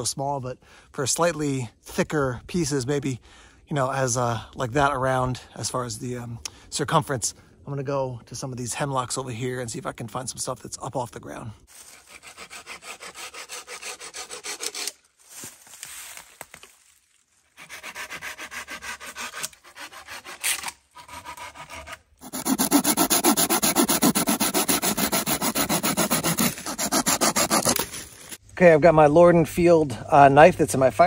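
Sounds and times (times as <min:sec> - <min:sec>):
hand saw cutting branch: 0:11.7 - 0:15.0, 0:17.5 - 0:28.4
blade working along stick: 0:17.6 - 0:28.4.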